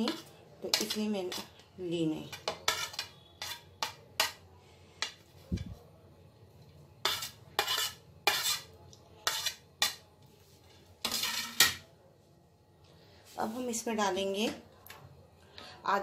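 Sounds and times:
spoon scraping ceramic plate: 0.0s - 1.5s, 2.2s - 4.4s, 7.0s - 10.0s, 11.0s - 11.8s.

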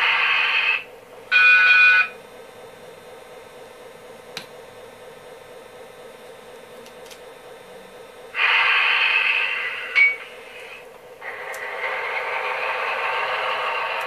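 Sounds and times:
loud locomotive hiss: 0.0s - 0.9s, 8.3s - 14.0s
steady hum from speaker: 0.0s - 14.0s.

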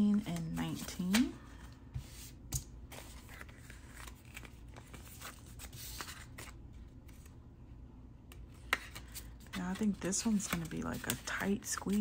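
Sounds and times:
paper rustling: 2.0s - 7.3s, 8.7s - 12.0s.

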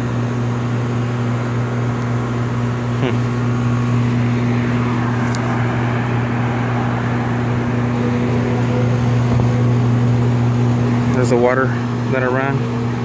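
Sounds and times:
air conditioning unit humming: 0.0s - 13.0s.

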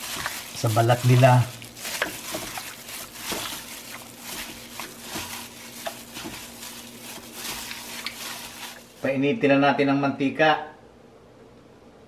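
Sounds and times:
wet squishing of meat: 0.0s - 9.0s
plastic glove rustling: 0.0s - 9.2s.

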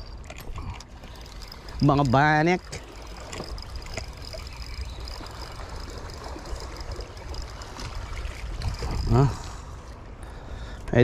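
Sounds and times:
water trickling and lapping: 0.0s - 10.8s
wind on microphone: 2.7s - 9.9s.

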